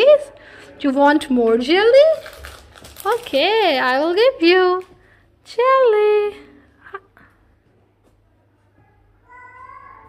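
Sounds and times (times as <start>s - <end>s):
child's soft high-pitched voice: 8.7s - 10.0s.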